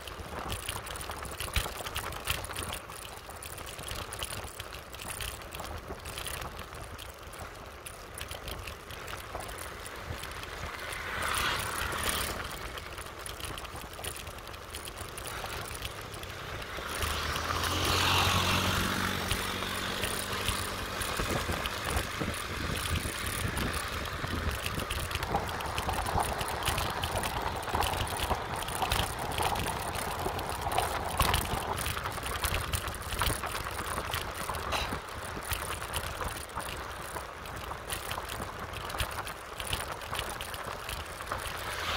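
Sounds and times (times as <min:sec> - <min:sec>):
motorbike engine running: 0:00.8 - 0:41.9
wind rushing over microphone: 0:17.0 - 0:33.4.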